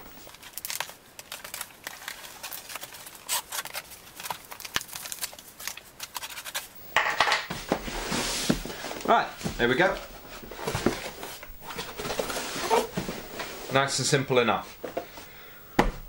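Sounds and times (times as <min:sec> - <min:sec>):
cardboard tearing: 0:00.2 - 0:06.8
scraping on cardboard and tape: 0:03.2 - 0:04.4, 0:07.5 - 0:09.1, 0:09.8 - 0:13.8.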